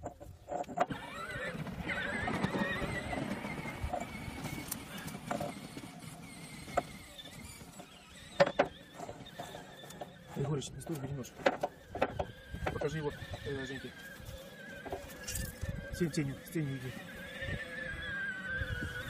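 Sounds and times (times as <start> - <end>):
thin wavering squeal: 6.3 - 19.0.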